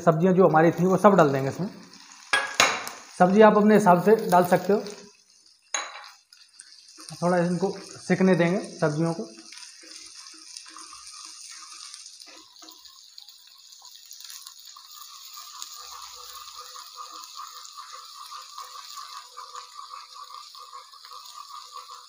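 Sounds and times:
vegetables sizzling in hot oil: 0.0 - 22.0
wooden spatula scraping and clacking: 15.3 - 22.0.

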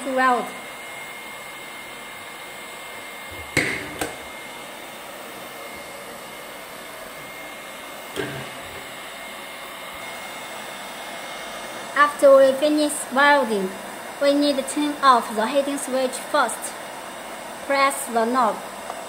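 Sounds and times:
hot-air blower hissing: 0.0 - 19.0
knocks: 3.3 - 4.2.

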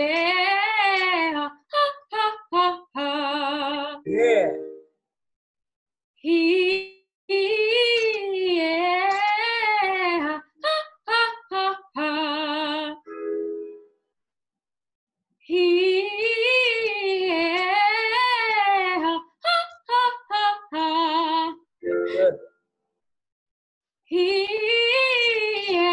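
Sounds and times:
woman singing vocal exercise: 6.3 - 13.0.

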